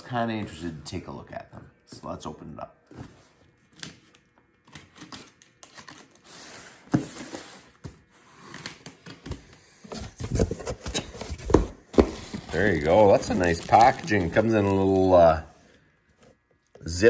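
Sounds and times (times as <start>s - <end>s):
paper rustling: 9.9s - 15.2s.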